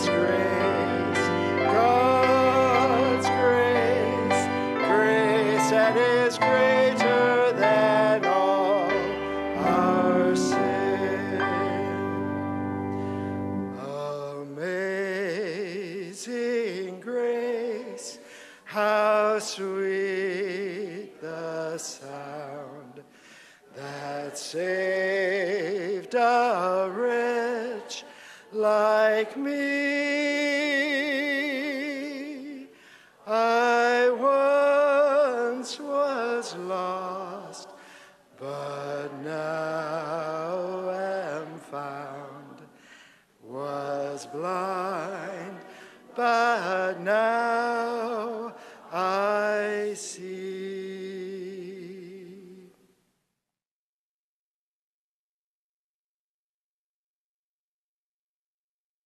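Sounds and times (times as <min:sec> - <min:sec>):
held accompaniment chord: 0:00.0 - 0:14.2
man singing with vibrato: 0:00.0 - 0:52.9.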